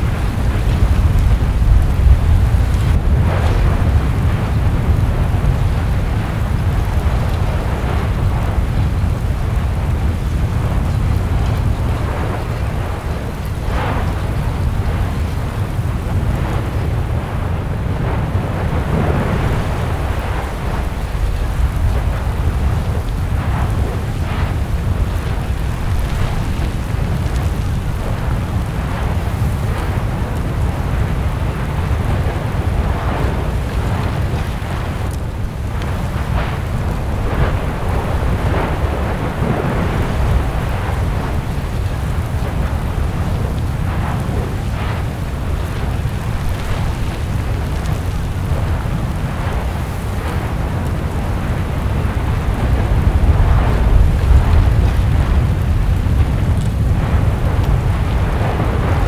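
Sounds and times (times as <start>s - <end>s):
deep volcanic rumble: 0.0s - 59.0s
lava crackling and spattering: 0.0s - 59.0s.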